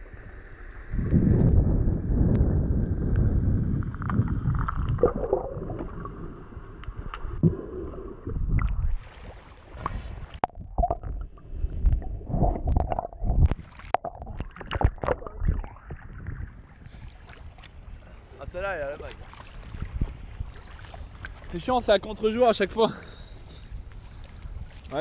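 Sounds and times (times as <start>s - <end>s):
muffled underwater rumble: 0.0s - 22.0s
water sloshing and bubbling: 0.0s - 25.0s
splashes: 12.7s - 22.3s.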